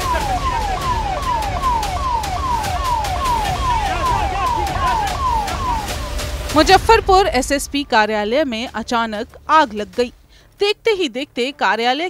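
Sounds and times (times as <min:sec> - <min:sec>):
emergency siren wailing: 0:00.0 - 0:09.2
low rumble: 0:00.0 - 0:11.2.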